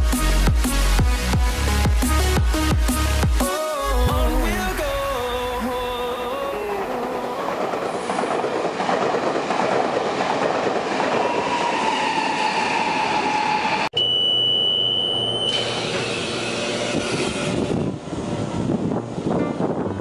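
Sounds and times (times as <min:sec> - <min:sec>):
train running on rails: 0:04.1 - 0:13.9, 0:15.0 - 0:20.0
high-pitched beep: 0:14.0 - 0:15.8.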